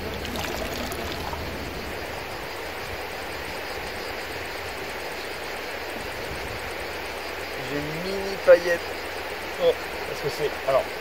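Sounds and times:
wind noise on microphone: 0.0s - 3.9s.

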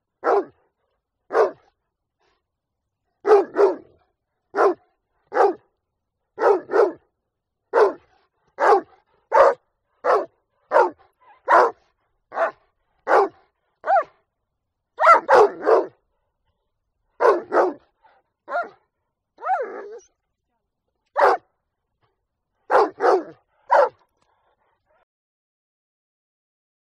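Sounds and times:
dog barking: 0.2s - 0.6s, 1.3s - 1.7s, 3.2s - 5.6s, 6.4s - 7.0s, 7.7s - 14.2s, 15.0s - 16.0s, 17.2s - 18.8s, 19.4s - 20.1s, 21.2s - 21.5s, 22.7s - 25.0s.

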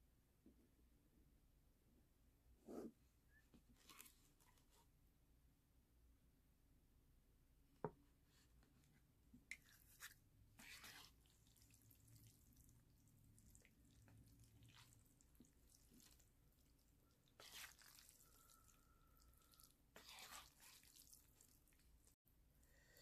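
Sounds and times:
wet noodle eating sounds: 9.5s - 22.2s.

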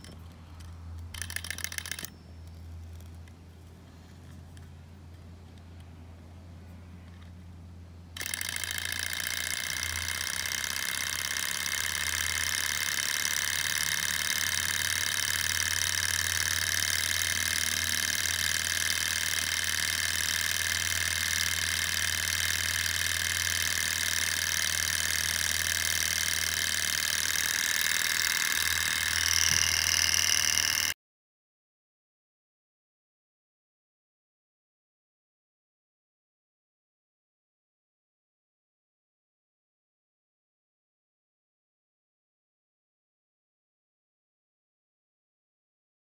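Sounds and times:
small engine whirring and rattling: 0.0s - 31.0s
flywheel flicked by hand: 1.1s - 3.2s, 8.2s - 31.0s.

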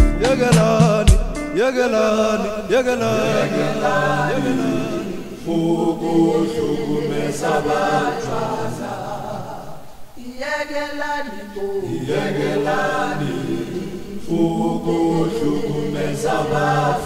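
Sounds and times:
gospel choir singing: 0.4s - 17.0s.

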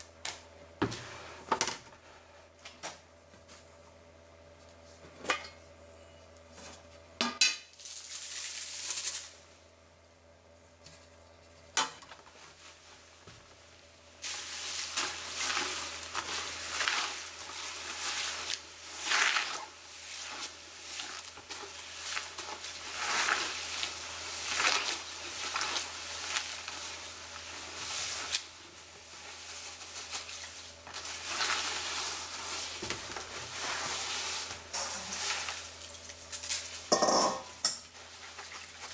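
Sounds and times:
charcoal rattling in plastic bucket: 14.2s - 37.3s.

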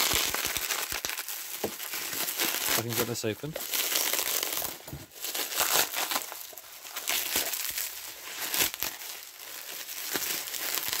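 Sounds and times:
bubble wrap crinkling and crackling: 0.0s - 11.0s.

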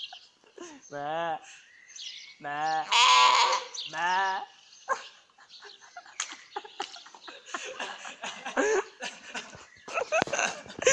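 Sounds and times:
man laughing softly: 0.0s - 1.6s, 4.9s - 10.9s.

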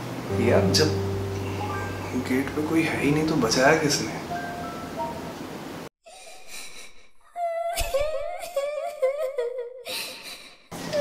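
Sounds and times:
child crying: 7.3s - 9.8s.

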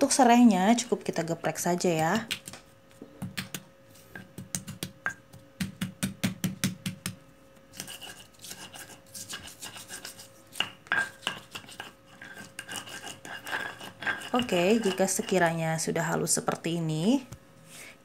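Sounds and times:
pestle grinding in stone mortar: 3.2s - 15.6s
stone pestle crushing spices: 3.2s - 15.6s.

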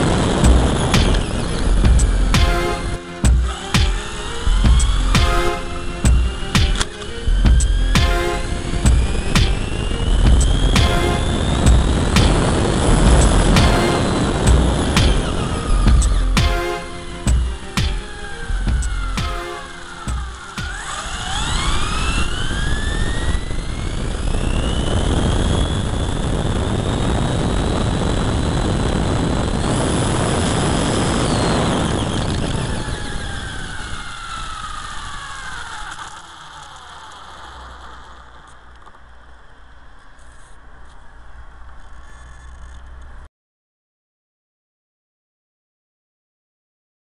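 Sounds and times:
electric motor whine: 0.0s - 43.0s
road and wind rushing: 0.0s - 43.3s.

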